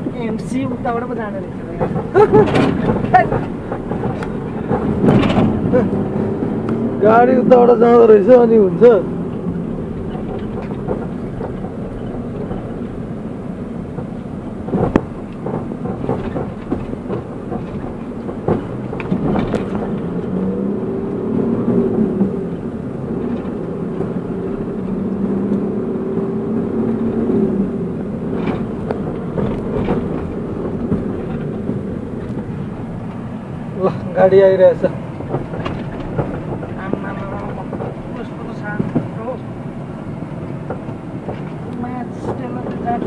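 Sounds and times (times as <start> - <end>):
car engine running: 0.0 - 43.0
tyre and road noise: 0.0 - 43.0
sharp knocks: 13.9 - 20.5.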